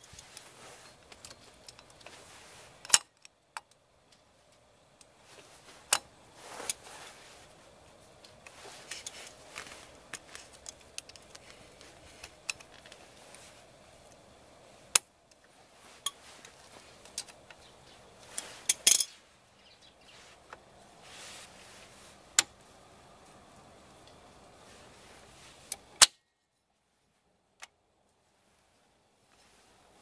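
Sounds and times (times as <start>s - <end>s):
metal brake parts clinking: 18.3s - 19.2s.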